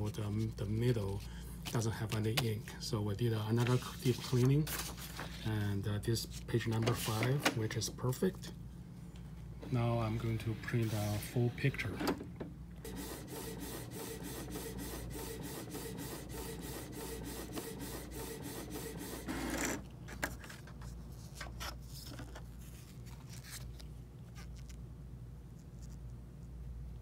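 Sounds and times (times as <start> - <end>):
printer whir: 9.6 - 19.9
inkjet printer printing: 12.8 - 19.9.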